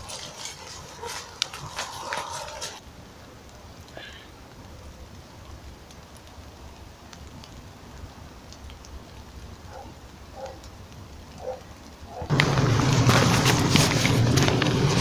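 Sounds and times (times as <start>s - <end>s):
soft rustles: 0.0s - 2.8s
small ticks: 8.5s - 12.2s.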